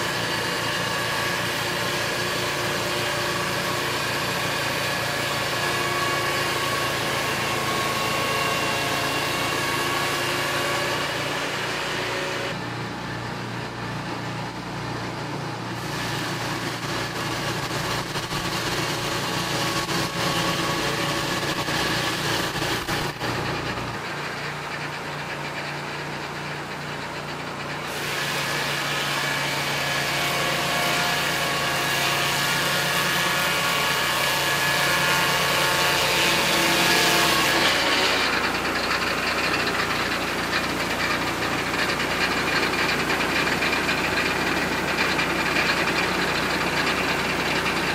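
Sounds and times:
sawmill engine running: 0:00.0 - 0:47.9.

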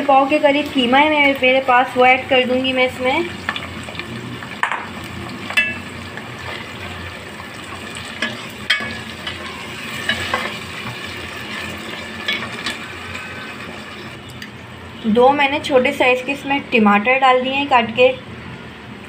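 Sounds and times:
meat and onions sizzling: 0:00.0 - 0:14.2.

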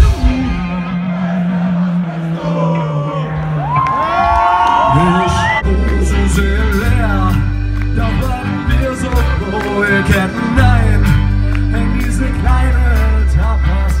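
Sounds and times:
live rock band playing: 0:00.0 - 0:01.9, 0:05.0 - 0:14.0
lead singer singing: 0:04.7 - 0:14.0.

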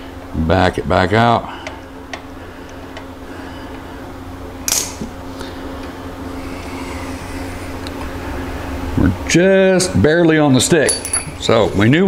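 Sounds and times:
low hum: 0:00.0 - 0:09.3.

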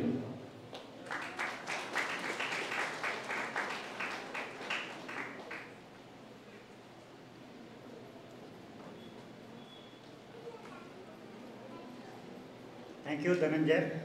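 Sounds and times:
audience applauding: 0:00.8 - 0:05.8.

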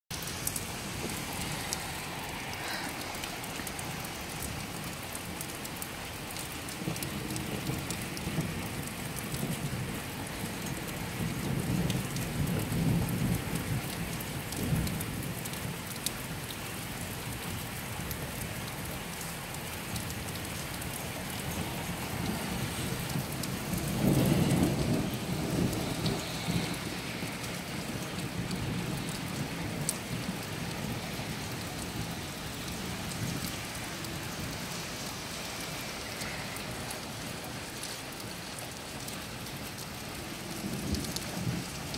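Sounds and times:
heavy rain: 0:00.1 - 0:41.9
thunder rumbling: 0:21.4 - 0:33.4.

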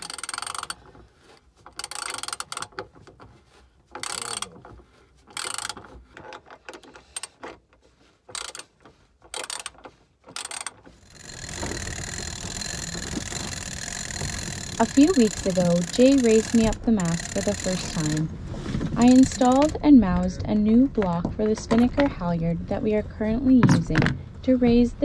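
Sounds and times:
ratchet wrench clicking: 0:00.0 - 0:00.8, 0:01.8 - 0:02.9, 0:04.0 - 0:04.6, 0:05.3 - 0:05.9, 0:08.3 - 0:08.7, 0:09.3 - 0:18.2.

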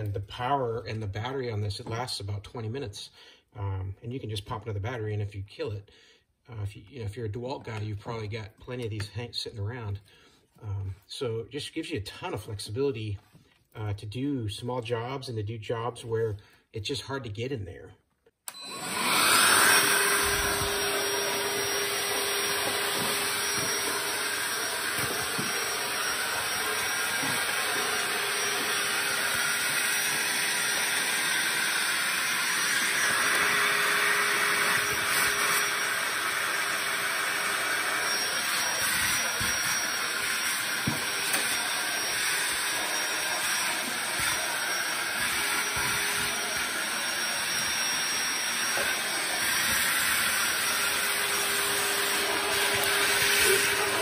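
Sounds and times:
handheld vacuum running: 0:18.5 - 0:54.0.

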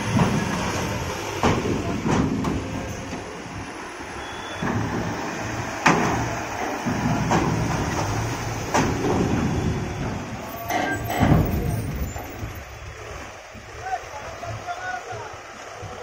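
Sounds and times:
wheels clanking over metal ramp: 0:00.0 - 0:03.6, 0:04.2 - 0:12.6
truck diesel engine running: 0:00.0 - 0:16.0.

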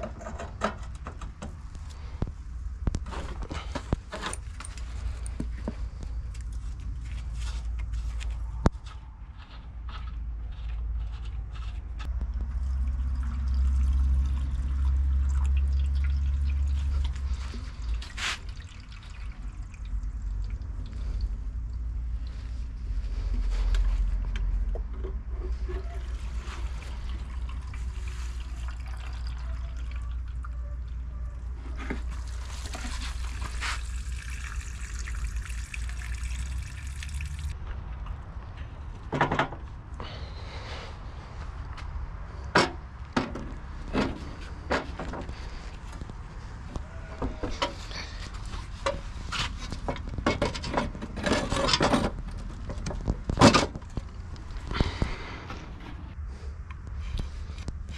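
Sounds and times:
liquid trickling and pouring: 0:12.4 - 0:21.7, 0:26.0 - 0:31.0, 0:31.6 - 0:37.6.

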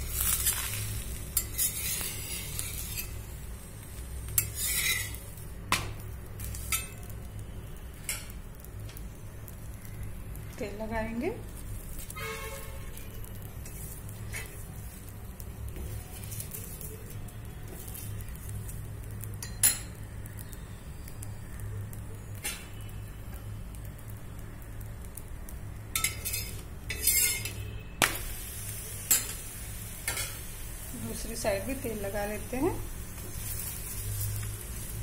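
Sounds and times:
spoon scraping iron griddle: 0:00.0 - 0:03.3, 0:04.3 - 0:05.4, 0:06.4 - 0:07.1, 0:13.6 - 0:15.0, 0:25.9 - 0:27.6, 0:29.0 - 0:30.5.

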